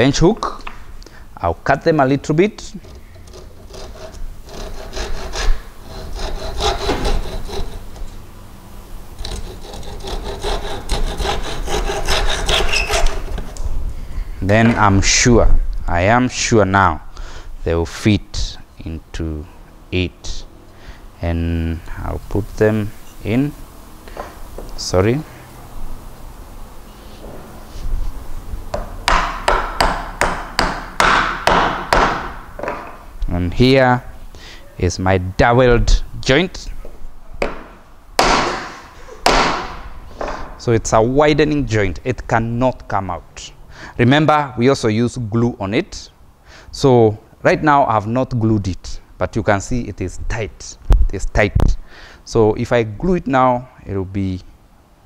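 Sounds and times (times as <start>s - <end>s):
hand saw cutting wood: 2.6s - 8.1s, 9.2s - 13.6s.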